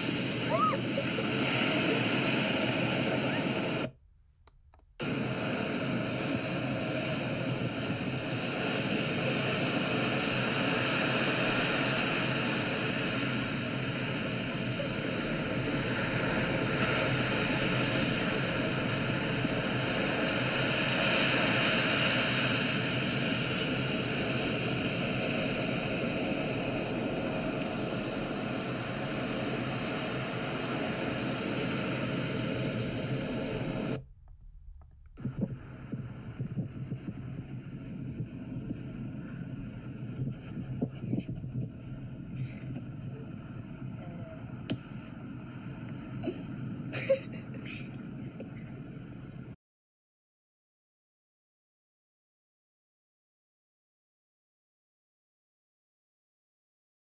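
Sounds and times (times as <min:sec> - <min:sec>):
surf washing up beach: 0:00.0 - 0:03.9, 0:05.0 - 0:34.0, 0:35.2 - 0:47.4.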